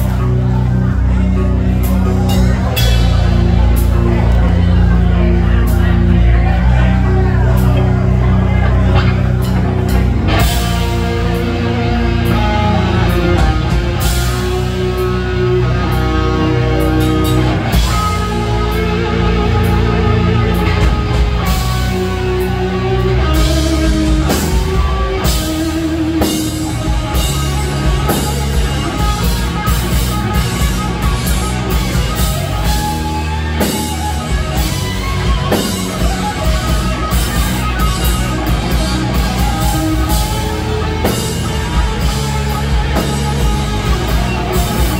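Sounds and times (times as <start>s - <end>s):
bass guitar: 0.0s - 44.9s
electric guitars: 0.0s - 44.9s.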